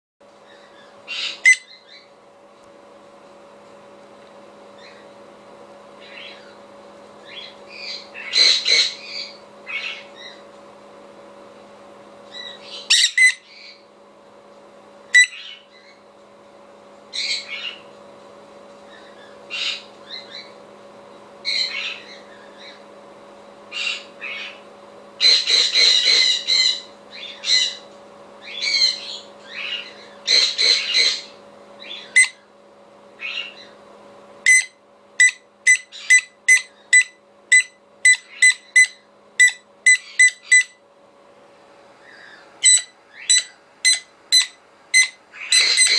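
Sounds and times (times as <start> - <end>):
parrot screaming: 7.3 - 10.4, 12.4 - 13.4, 25.2 - 27.8, 28.4 - 32.4, 42.1 - 45.9
recorded parrot screams: 7.3 - 10.4, 12.4 - 13.4, 25.2 - 27.8, 28.4 - 32.4, 42.0 - 45.9.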